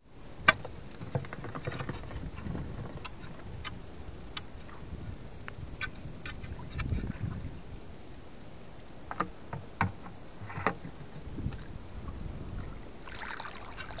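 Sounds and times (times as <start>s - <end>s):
water sloshing and splashing: 5.8s - 7.6s, 9.1s - 14.0s
low rumble: 11.2s - 13.1s.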